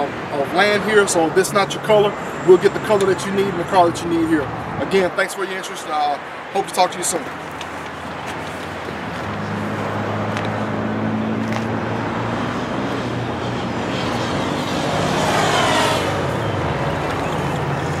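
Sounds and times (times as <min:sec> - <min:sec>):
traffic noise: 0:00.0 - 0:18.0
motor vehicle running: 0:07.8 - 0:18.0.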